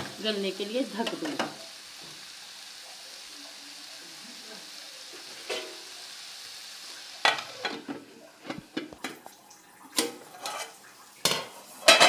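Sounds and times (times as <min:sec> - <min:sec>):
vegetables sizzling in oil: 0:00.0 - 0:12.0
pot lid clattering: 0:10.0 - 0:12.0.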